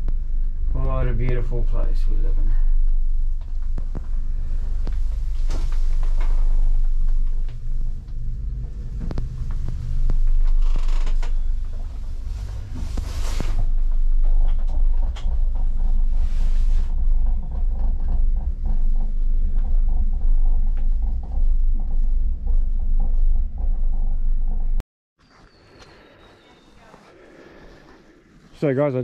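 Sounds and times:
gondola cabin rumble: 0.0s - 24.8s
knocks and rattles: 0.0s - 24.8s.

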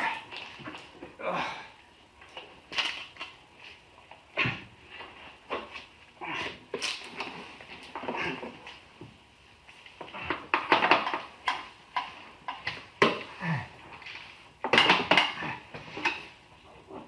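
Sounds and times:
man grunting: 1.2s - 1.8s, 13.3s - 13.8s.

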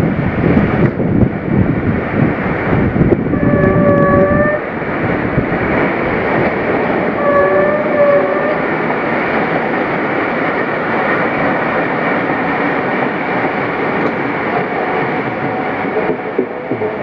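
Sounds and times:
train wheels rushing on rails: 0.0s - 17.0s.

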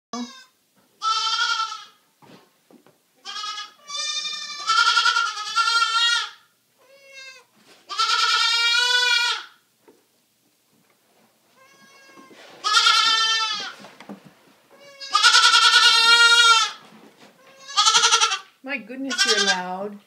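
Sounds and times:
baby goat bleating: 0.2s - 2.0s, 3.2s - 9.6s, 11.6s - 13.8s, 14.7s - 16.8s, 17.4s - 18.5s, 19.1s - 19.7s.

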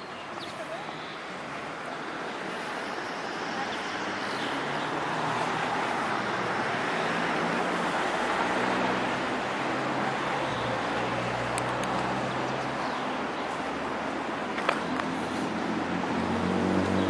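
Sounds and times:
tyres and engines of traffic: 0.0s - 17.0s.

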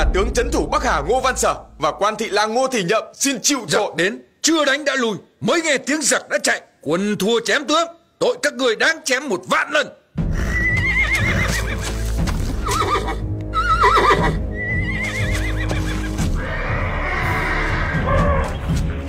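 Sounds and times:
film score music: 0.0s - 3.0s, 10.1s - 19.0s
horses whinnying: 10.3s - 18.7s.

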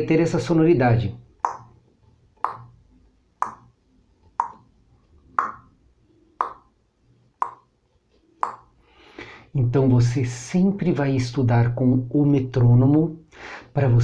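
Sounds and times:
metronome clicking: 1.4s - 1.8s, 2.4s - 2.8s, 3.4s - 3.7s, 4.3s - 4.7s, 5.4s - 5.7s, 6.4s - 6.7s, 7.4s - 7.7s, 8.4s - 8.7s.

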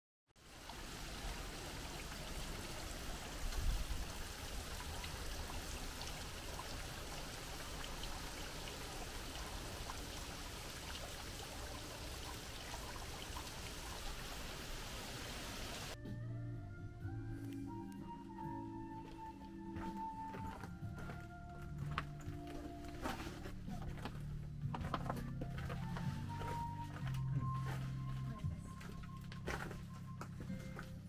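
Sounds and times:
small waterfall splashing: 0.4s - 16.0s.

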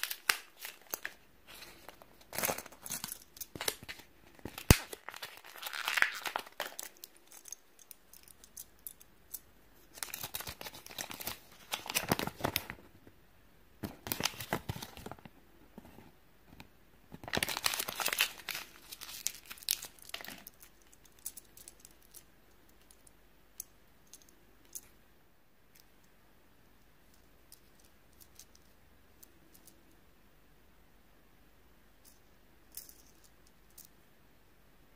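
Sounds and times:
plastic wrapping tearing and crinkling: 0.0s - 7.5s, 17.3s - 20.5s.

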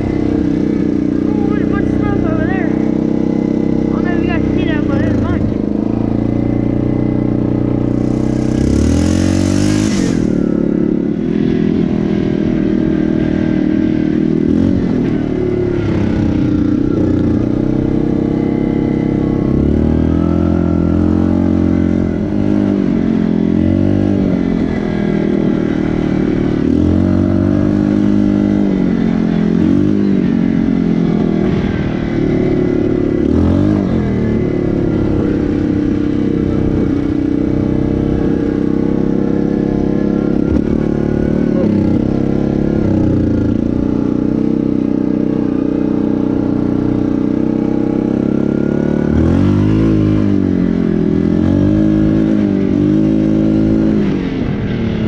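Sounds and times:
atv engine revving: 0.0s - 55.0s
short hissing rush: 9.3s - 10.4s.

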